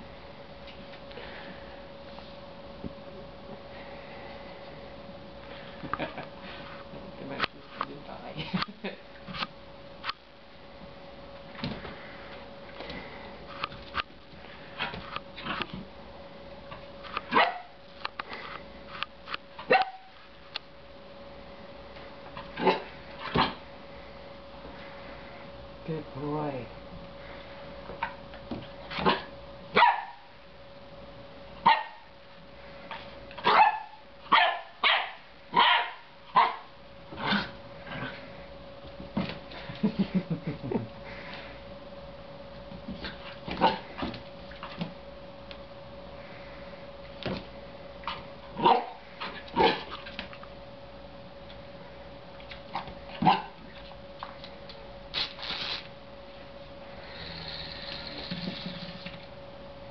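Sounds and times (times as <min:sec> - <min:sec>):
puppy barking: 0:17.3 - 0:17.7, 0:19.7 - 0:20.1, 0:29.0 - 0:30.3, 0:31.6 - 0:32.1, 0:33.4 - 0:36.7, 0:48.6 - 0:49.0, 0:53.2 - 0:53.6.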